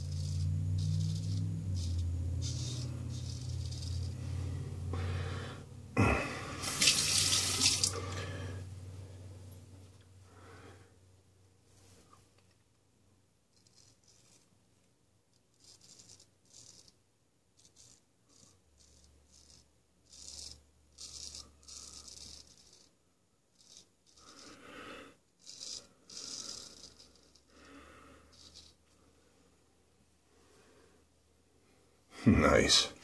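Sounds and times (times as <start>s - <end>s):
razor scraping stubble: 0.0s - 4.7s, 13.5s - 14.6s, 15.3s - 24.7s, 25.4s - 29.0s.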